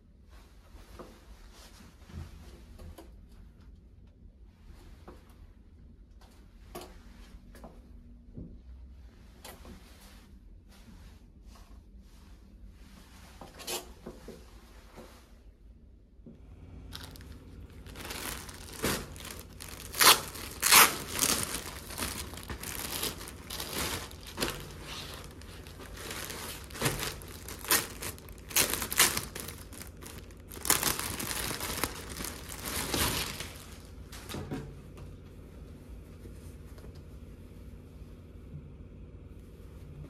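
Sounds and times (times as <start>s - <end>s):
plastic bag crinkling: 16.9s - 34.3s.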